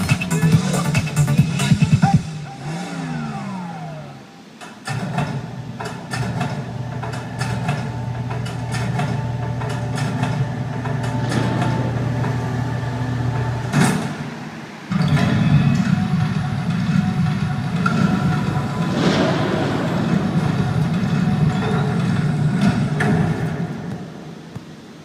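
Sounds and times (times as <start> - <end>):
falling pitch glides: 2.2 - 4.6, 16.7 - 23.0
low engine-like hum: 10.4 - 23.4
loud hit: 17.7 - 24.4.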